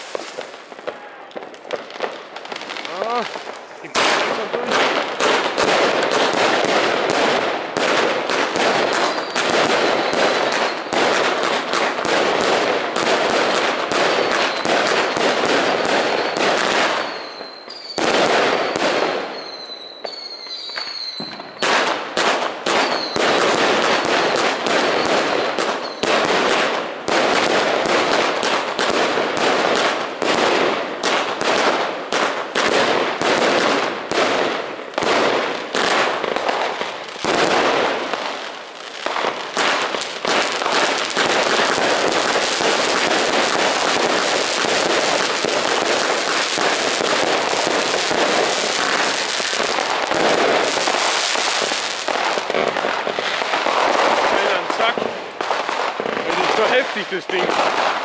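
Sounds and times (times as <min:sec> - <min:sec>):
firework cake firing shots: 0:00.0 - 0:19.7, 0:20.7 - 0:58.0
crackling star bursts: 0:00.0 - 0:58.0
firework whistling tones: 0:08.9 - 0:11.0, 0:14.1 - 0:21.8, 0:22.7 - 0:26.3.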